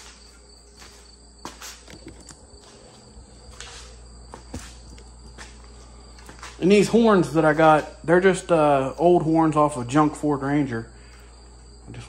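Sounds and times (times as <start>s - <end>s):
high insect chirring: 0.0s - 12.0s
parts clicking and knocking: 1.7s - 2.5s.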